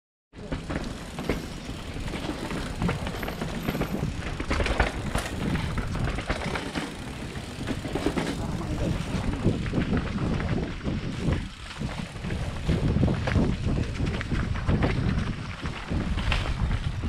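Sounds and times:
bike rattling and knocking: 0.4s - 17.0s
bike tyres rumbling on trail: 0.4s - 17.0s.

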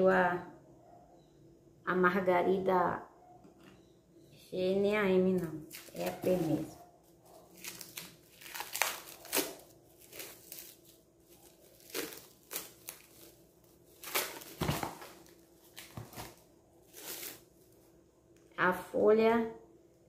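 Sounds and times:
plastic wrapping crinkling: 5.5s - 18.0s.

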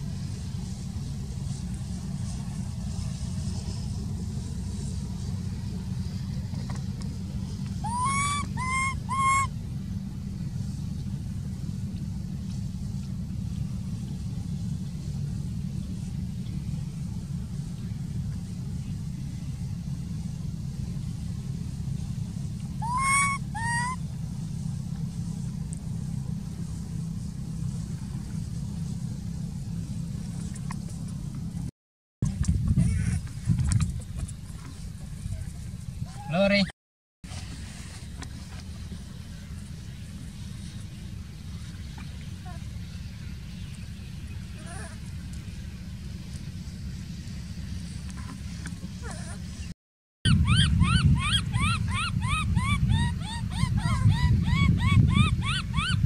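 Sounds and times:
steady low rumble: 0.0s - 36.7s, 37.3s - 56.0s
baby monkey crying: 7.8s - 9.5s, 22.8s - 24.0s, 44.6s - 45.0s, 50.3s - 56.0s.

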